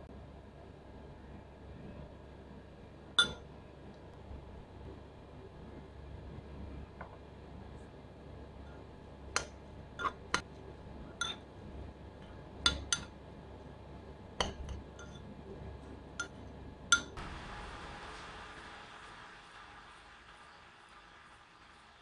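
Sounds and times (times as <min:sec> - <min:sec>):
spoon clinking against ceramic bowl: 0:03.2 - 0:03.4, 0:10.0 - 0:10.4, 0:11.1 - 0:11.4, 0:12.6 - 0:13.2, 0:14.4 - 0:15.3, 0:16.2 - 0:17.2.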